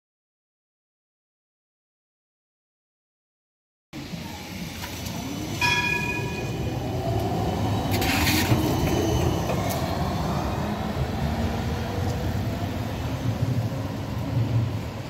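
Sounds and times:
tram wheels and motors rumbling: 4.0s - 15.0s
high ringing tone: 5.6s - 6.8s.

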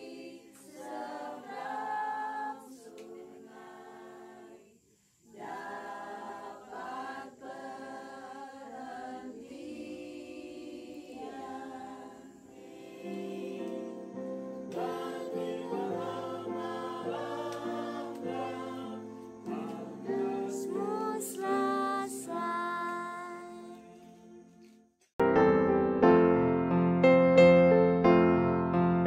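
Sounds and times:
women singing a hymn: 0.0s - 24.8s.

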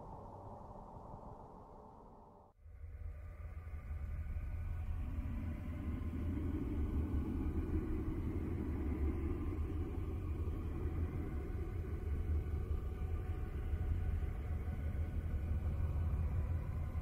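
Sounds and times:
faint steady tones: 0.0s - 17.0s
low rumbling drone: 0.0s - 17.0s.

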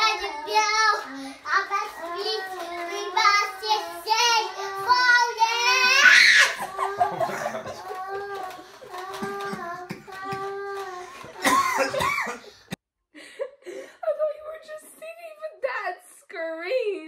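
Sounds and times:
children talking and singing: 0.0s - 12.1s.

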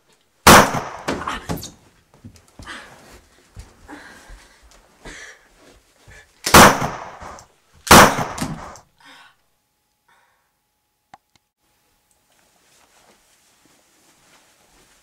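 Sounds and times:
loud gunshots: 0.4s - 1.2s, 6.5s - 8.8s.

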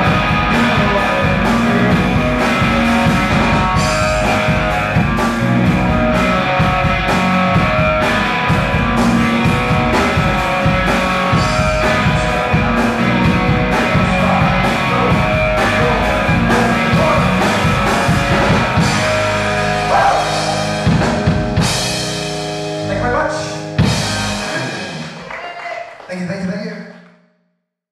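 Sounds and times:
drum beat: 0.0s - 23.2s
bass guitar: 0.0s - 25.4s
electric guitar: 0.0s - 25.4s.

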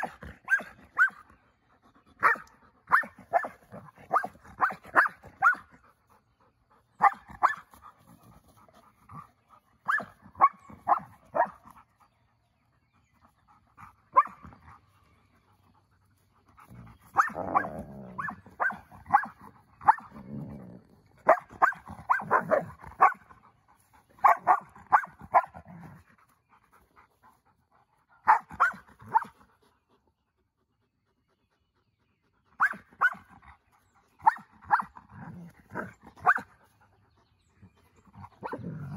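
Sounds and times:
puppies growling playfully: 12.8s - 26.6s, 34.9s - 38.9s
puppies barking: 17.1s - 20.2s, 21.2s - 23.2s, 24.2s - 25.6s.

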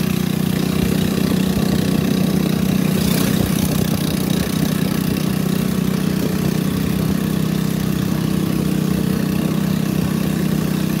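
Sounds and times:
boat engine running: 0.0s - 11.0s.

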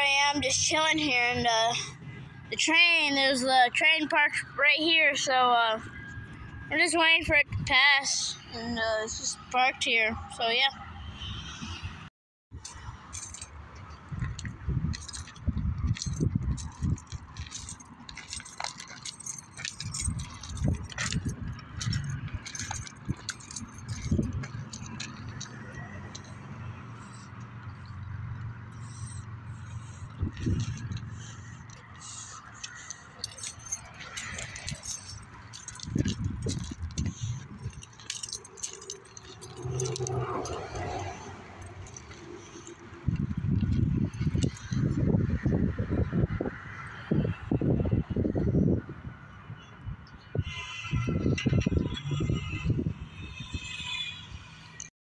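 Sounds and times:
metallic clinking and jingling: 12.6s - 45.4s
footsteps crunching on gravel: 13.3s - 27.0s, 28.8s - 42.7s.

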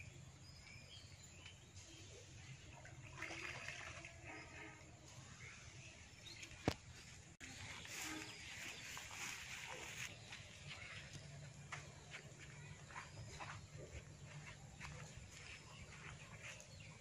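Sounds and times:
birds chirping: 4.0s - 17.0s
plants rustling: 7.4s - 10.2s.

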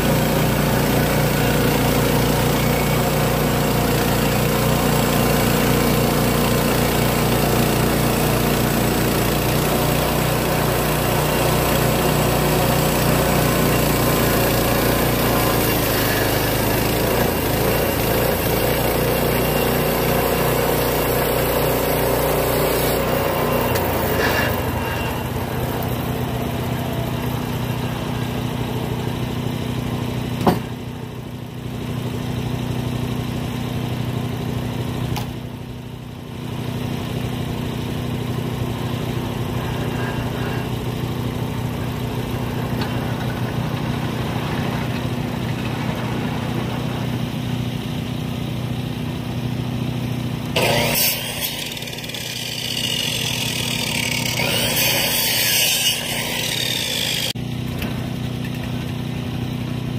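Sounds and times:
band blade sawing log: 0.0s - 31.0s, 37.8s - 47.6s, 50.4s - 57.4s
small gasoline engine running: 0.0s - 59.9s.

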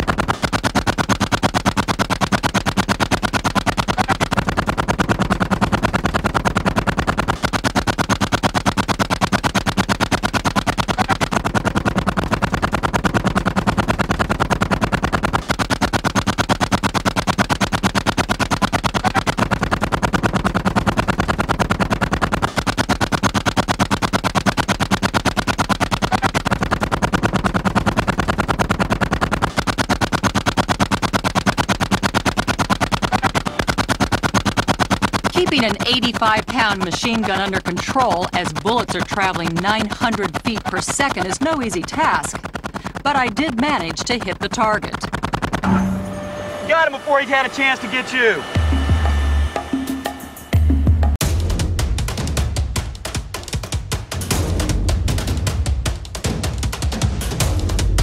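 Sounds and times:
machine gun firing bursts: 0.0s - 48.6s.

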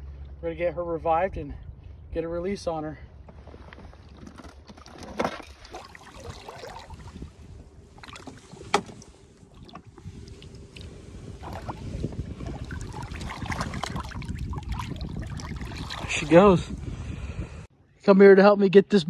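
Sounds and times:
river water sloshing: 4.0s - 16.9s
low rumble: 6.2s - 17.7s.

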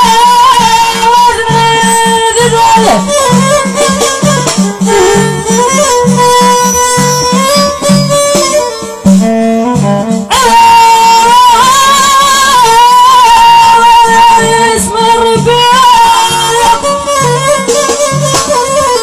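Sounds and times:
high wavering melody: 1.5s - 9.7s.

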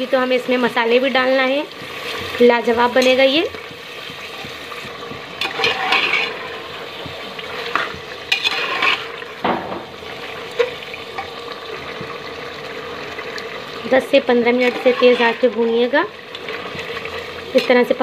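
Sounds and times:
meat sizzling: 0.0s - 18.0s
metal spoon scraping pot: 5.4s - 6.5s, 7.7s - 9.2s, 14.5s - 15.7s.

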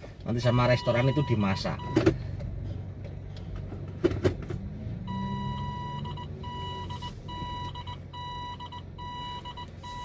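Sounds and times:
car engine and road hum: 0.0s - 10.0s
electronic beeping tone: 5.1s - 10.0s.

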